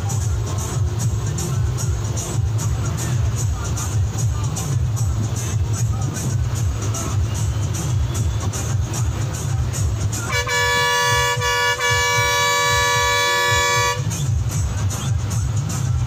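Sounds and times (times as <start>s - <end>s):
bus engine rumble: 0.0s - 16.0s
music playing: 0.0s - 16.0s
two-tone bus air horn: 10.1s - 14.2s.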